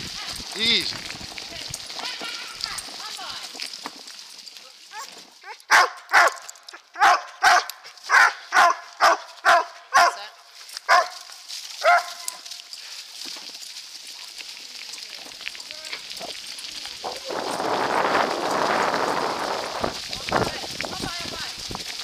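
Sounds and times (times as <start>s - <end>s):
bike tyres on leafy trail: 0.0s - 22.0s
wind: 0.0s - 22.0s
dogs barking: 5.4s - 10.3s, 10.9s - 12.4s.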